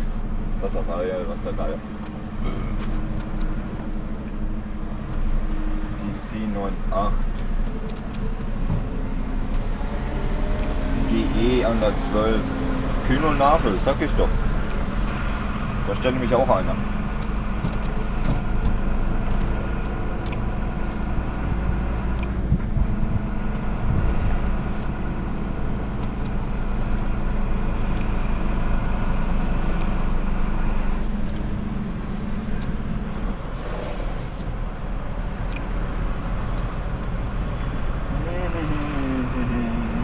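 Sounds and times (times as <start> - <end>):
truck engine running: 0.0 - 40.0
short air hiss: 33.6 - 34.4.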